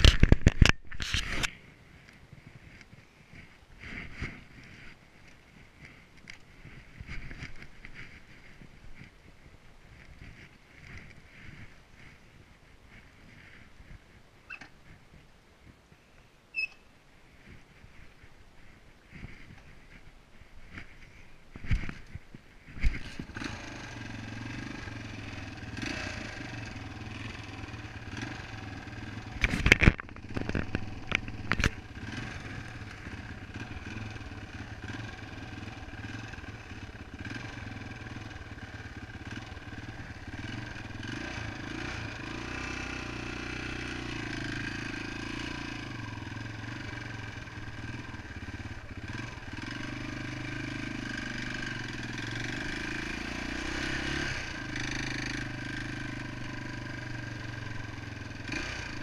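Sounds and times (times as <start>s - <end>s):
motorcycle engine running: 0.0s - 14.1s, 17.4s - 59.0s.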